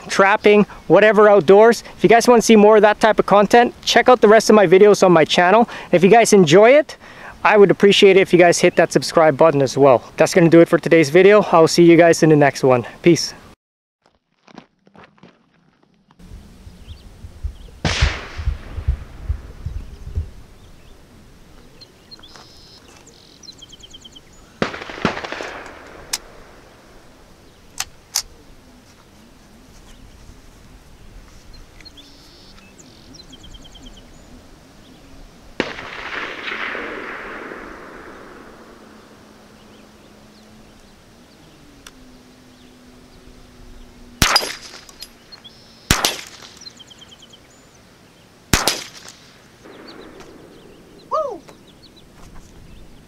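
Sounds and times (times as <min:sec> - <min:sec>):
rifle shots: 0:17.8 - 0:19.1, 0:24.6 - 0:26.8, 0:35.6 - 0:39.3, 0:44.2 - 0:45.2, 0:45.9 - 0:47.0, 0:48.5 - 0:51.0.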